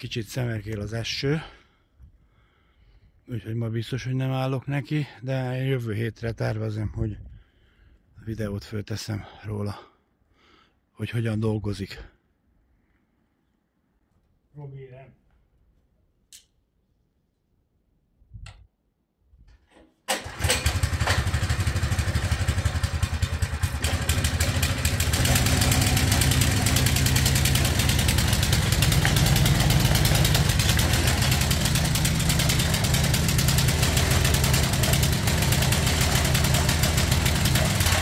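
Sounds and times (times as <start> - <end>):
small petrol engine starting and running: 20.1 - 38.0.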